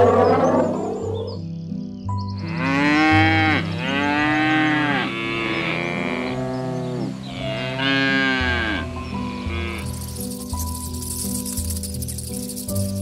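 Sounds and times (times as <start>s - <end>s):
soft background music: 0.0s - 13.0s
cow mooing: 2.4s - 10.0s.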